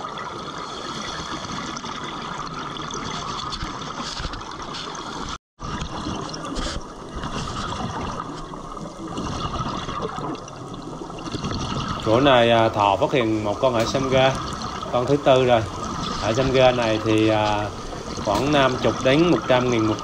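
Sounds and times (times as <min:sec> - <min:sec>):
underwater watery hiss: 0:00.5 - 0:01.9.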